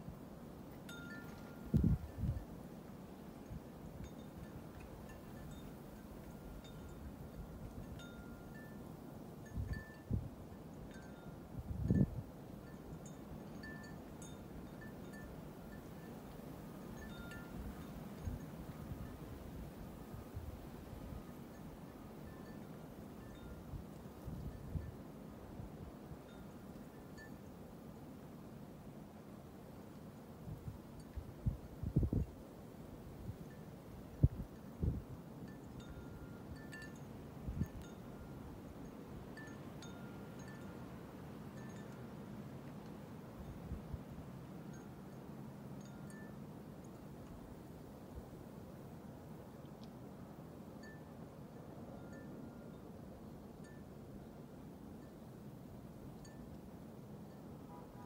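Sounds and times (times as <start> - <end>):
low rumble of wind: 0.0 - 58.0
wind chimes ringing: 0.9 - 1.8
wind chimes tinkling: 0.9 - 2.4, 12.0 - 16.2, 17.0 - 19.2, 35.5 - 42.2.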